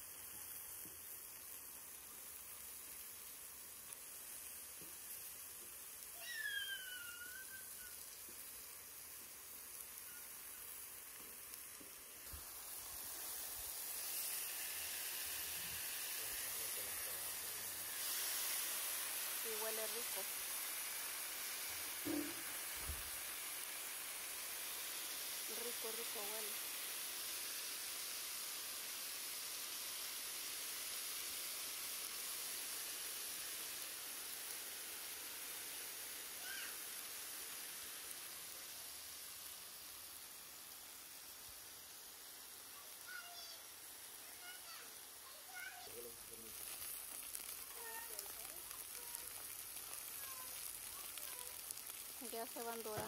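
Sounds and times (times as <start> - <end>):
food sizzling on griddle: 0.0 - 53.0.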